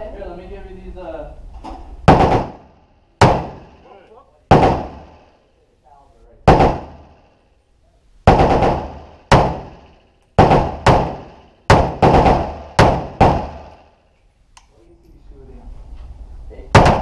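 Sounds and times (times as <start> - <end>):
rifle shots echoing indoors: 2.0 - 5.4, 6.4 - 7.5, 8.2 - 14.1, 16.7 - 17.0.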